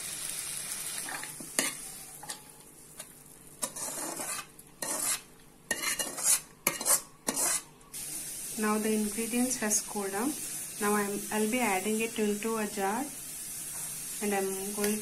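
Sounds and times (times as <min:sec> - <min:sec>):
metal spoon scraping a pan: 0:01.0 - 0:02.5, 0:03.6 - 0:07.7.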